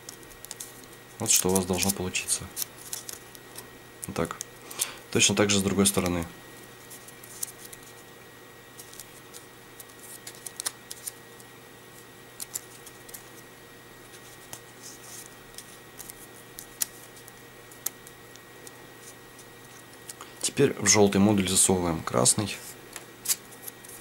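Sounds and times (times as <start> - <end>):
paper crinkling: 0.0 - 4.9, 6.8 - 8.1, 8.7 - 11.5, 12.4 - 20.3
sharp paper ticks: 0.0 - 4.9, 6.8 - 8.0, 8.8 - 11.5, 12.4 - 13.4, 14.2 - 20.3
faint steady hum: 0.0 - 24.0.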